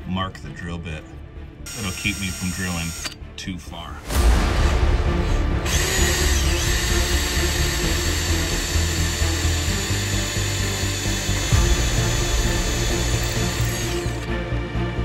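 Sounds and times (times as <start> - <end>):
background music: 0.0 - 15.0
electric drill boring into metal: 1.7 - 3.2, 5.6 - 14.3.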